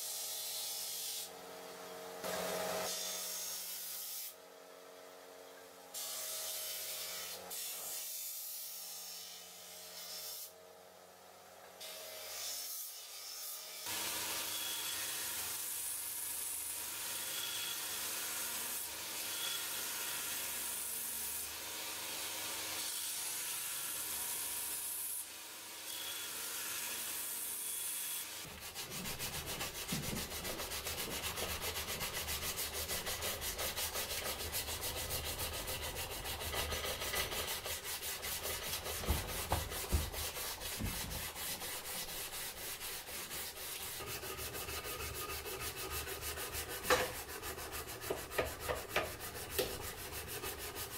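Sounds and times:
belt grinder grinding wood: 25.9 - 50.9
hand sanding metal: 28.4 - 50.9.

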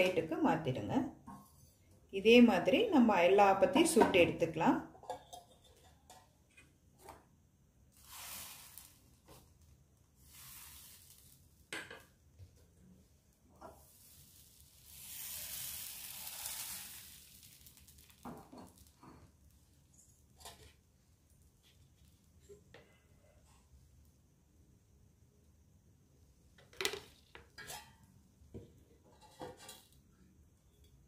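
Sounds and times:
batter sizzling on a hot pan: 7.8 - 12.3, 13.3 - 22.4.

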